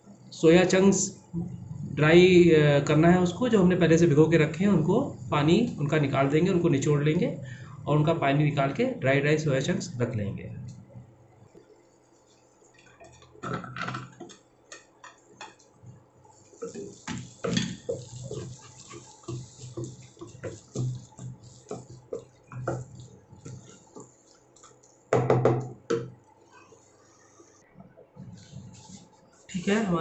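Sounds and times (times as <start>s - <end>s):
wooden spatula scraping pan: 16.4s - 24.8s.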